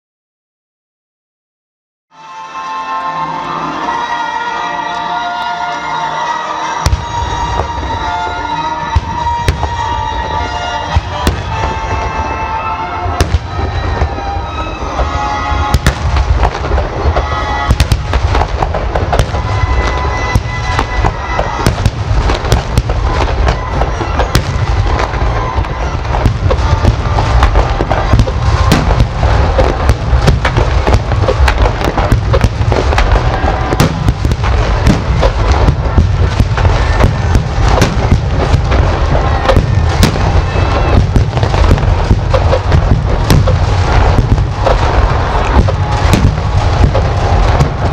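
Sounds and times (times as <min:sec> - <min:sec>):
fireworks bursting and crackling: 0:02.5 - 0:47.9.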